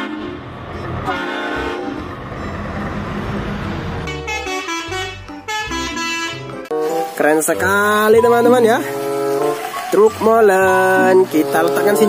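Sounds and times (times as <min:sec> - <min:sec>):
truck horn notes: 0:00.0 - 0:02.8, 0:04.0 - 0:06.9
engine and road noise: 0:00.0 - 0:12.0.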